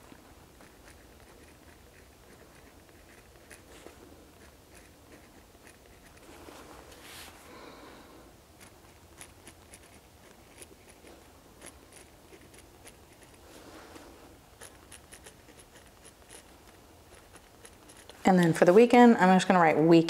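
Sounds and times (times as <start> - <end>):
pen writing on paper: 0.6 - 6.3, 8.6 - 13.4, 14.6 - 18.2.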